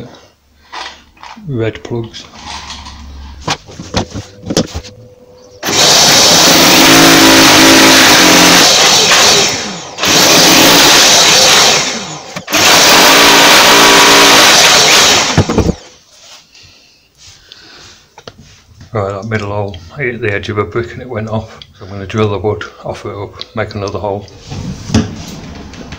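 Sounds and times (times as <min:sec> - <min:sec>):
electric drill boring into brick: 0:05.6 - 0:15.8.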